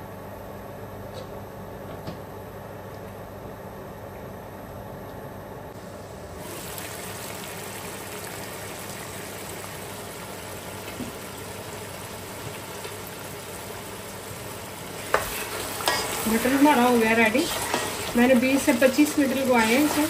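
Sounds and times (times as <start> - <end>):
pot simmering and bubbling: 5.7 - 20.0.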